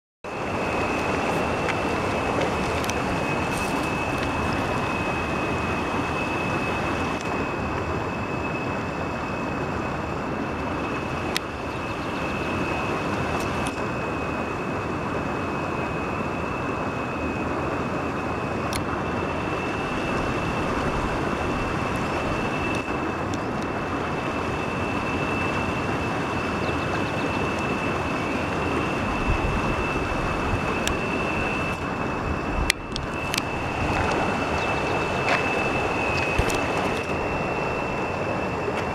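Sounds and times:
high-pitched whine: 0.2 - 38.9
river water rushing over rocks: 0.3 - 7.3, 30.0 - 38.9.

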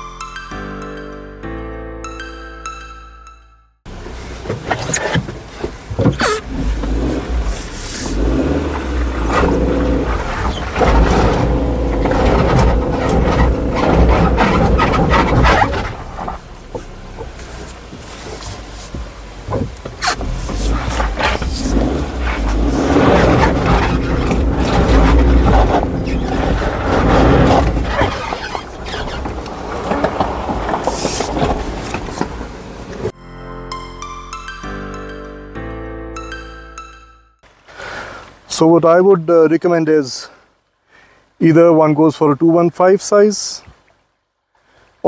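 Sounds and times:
car engine running: 3.9 - 33.1
tyre and body noise: 4.4 - 33.1.

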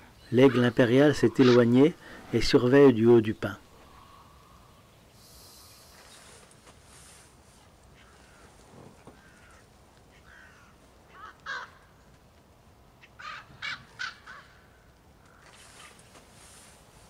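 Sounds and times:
ravens calling: 0.0 - 6.4, 7.7 - 12.3, 12.9 - 16.1.

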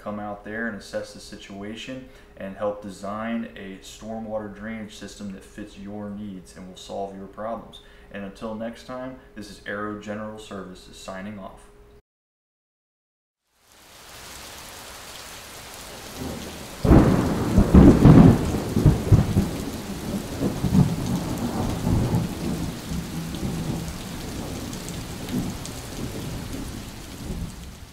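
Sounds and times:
steady rain: 13.4 - 27.9
thunder clap rumbling: 15.9 - 27.9.

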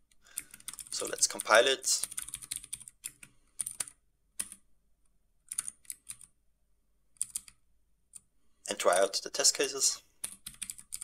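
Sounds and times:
keyboard typing clicks: 0.4 - 4.6, 5.5 - 6.3, 7.2 - 8.3, 10.2 - 11.0.

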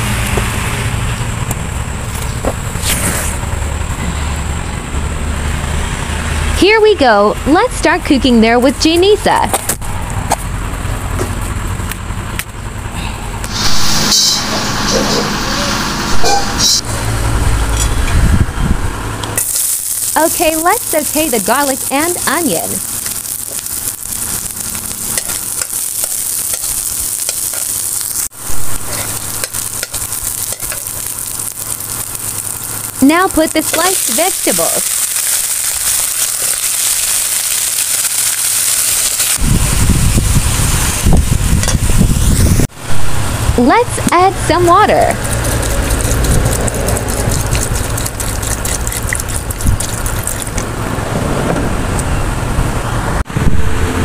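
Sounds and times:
low rumble: 9.4 - 44.5, 49.5 - 54.0
garlic and onion sizzling: 13.5 - 18.0, 19.3 - 50.8
water pouring into wok: 19.4 - 39.4, 45.2 - 50.7
spatula scraping a wok: 25.1 - 31.1.

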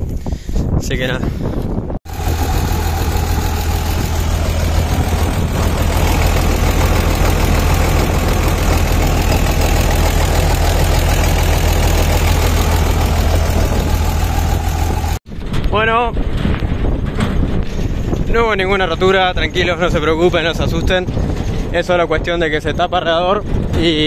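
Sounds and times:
diesel engine droning: 2.1 - 15.2.

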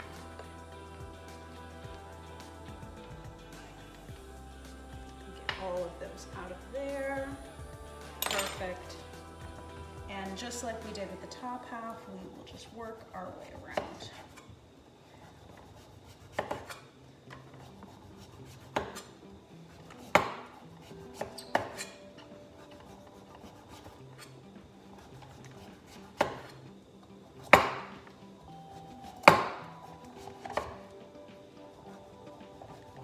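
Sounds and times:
knife paring squash skin: 22.6 - 26.6.

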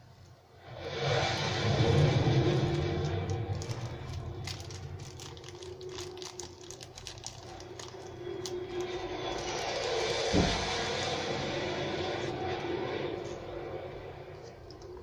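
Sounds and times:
steady low hum: 0.0 - 15.0
plastic bag crinkling: 2.4 - 10.5.

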